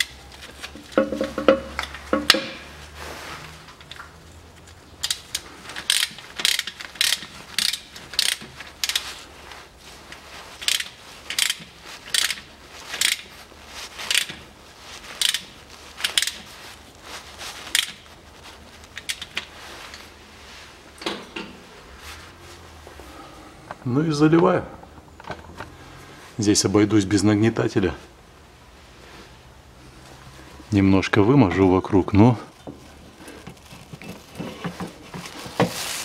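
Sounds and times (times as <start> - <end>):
ratchet wrench clicking: 5.0 - 9.0, 10.6 - 13.3, 14.1 - 14.3, 15.2 - 16.4, 17.7 - 17.9.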